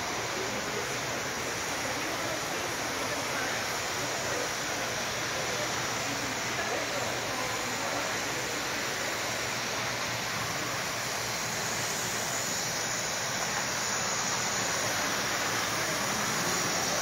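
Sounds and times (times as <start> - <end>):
model train rolling on metal track: 0.0 - 17.0.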